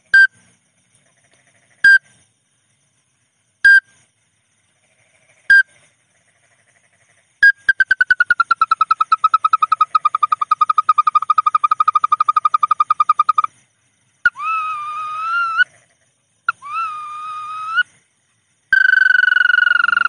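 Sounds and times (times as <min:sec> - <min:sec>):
recorded bird whistled trill: 0:07.4 - 0:13.5, 0:14.2 - 0:15.7, 0:16.5 - 0:17.9, 0:18.7 - 0:20.0
drawn-out rising whistles: 0:14.2 - 0:15.7, 0:16.5 - 0:18.0, 0:18.7 - 0:20.0.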